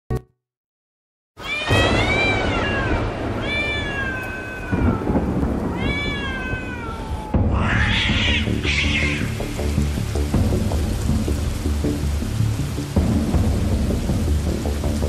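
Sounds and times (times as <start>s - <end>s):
cat meowing: 1.4s - 9.4s
low rumble of thunder: 1.5s - 15.0s.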